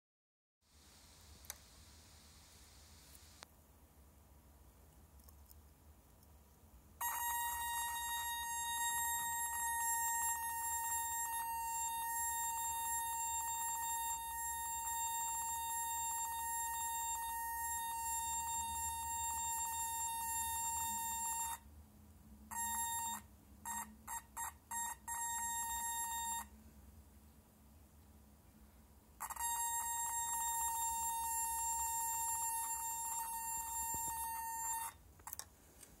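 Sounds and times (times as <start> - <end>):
twinkling electronic noise: 7.0 - 21.6, 29.2 - 35.0.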